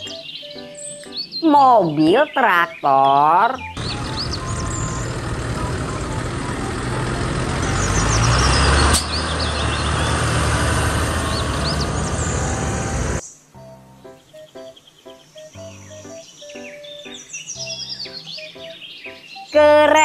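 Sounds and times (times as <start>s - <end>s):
tractor diesel engine running: 3.7s - 13.2s.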